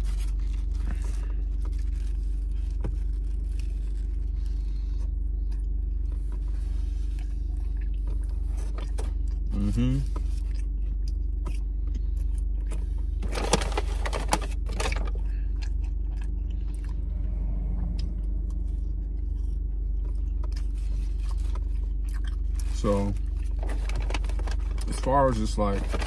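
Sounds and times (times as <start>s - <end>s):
paper wrapper crinkling: 0.0s - 4.2s, 13.2s - 15.1s, 20.6s - 26.0s
chewing close to microphone: 0.0s - 13.7s, 14.3s - 17.2s, 17.8s - 25.0s
car low hum: 0.0s - 26.0s.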